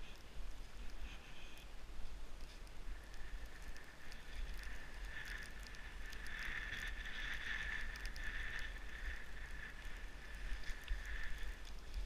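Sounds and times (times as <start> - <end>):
faint clicks: 0.0 - 12.0
skis sliding through snow: 0.0 - 12.0.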